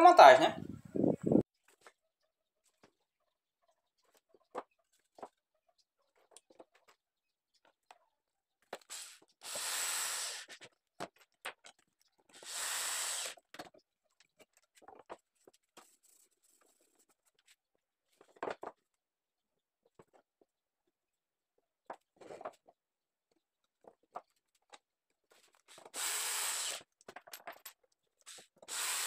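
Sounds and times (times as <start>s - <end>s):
electric drill driving screws: 9.4s - 10.4s, 12.4s - 13.4s, 25.8s - 26.8s, 28.7s - 29.0s.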